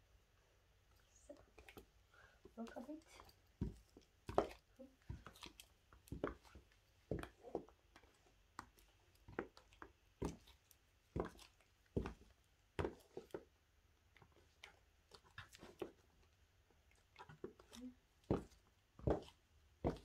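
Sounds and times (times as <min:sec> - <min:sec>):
high-heeled footsteps: 0:18.3 - 0:20.0.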